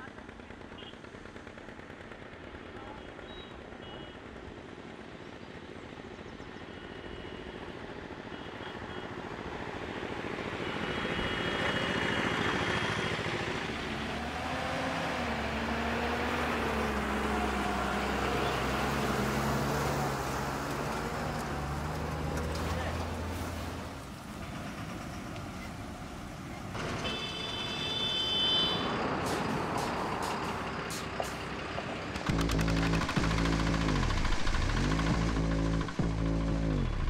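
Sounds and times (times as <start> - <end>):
small stationary engine chugging: 0.0 - 6.1, 32.1 - 37.0
truck engine and tyres: 0.0 - 37.0.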